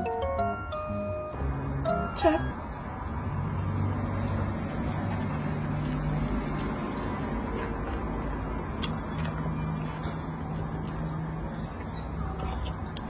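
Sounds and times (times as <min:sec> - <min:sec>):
dog chewing with clicks: 0:03.8 - 0:13.0.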